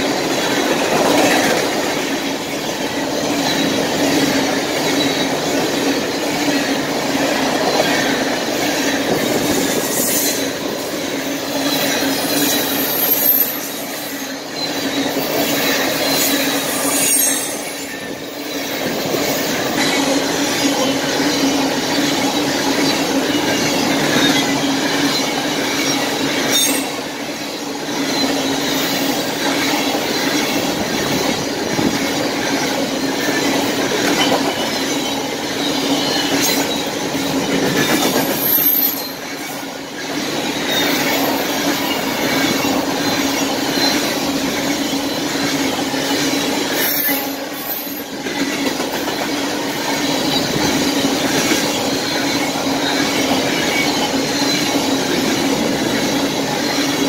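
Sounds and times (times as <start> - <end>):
freight train wheels rumbling on rail: 0.0 - 57.0
high wheel squeals: 7.7 - 49.2, 49.8 - 57.0.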